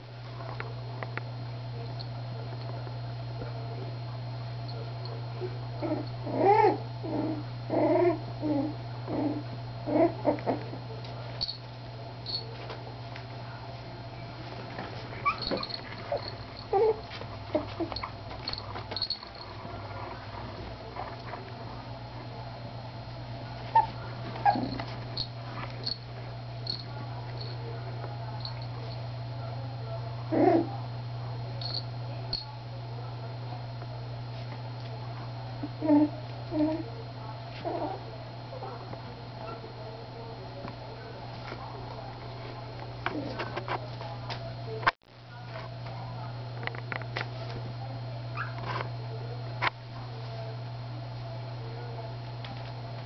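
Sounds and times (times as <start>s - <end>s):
steady low hum: 0.0s - 53.0s
puppies whimpering: 15.2s - 15.8s.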